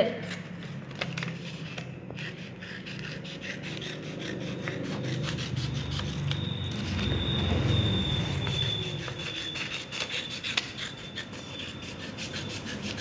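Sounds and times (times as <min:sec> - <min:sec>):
scissors snipping paper: 0:00.2 - 0:06.9.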